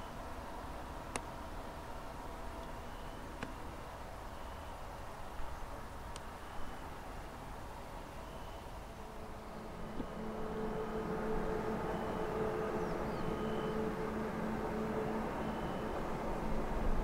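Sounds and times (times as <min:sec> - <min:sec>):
diesel locomotive engine hum: 0:00.0 - 0:17.0
train rumble: 0:08.9 - 0:17.0.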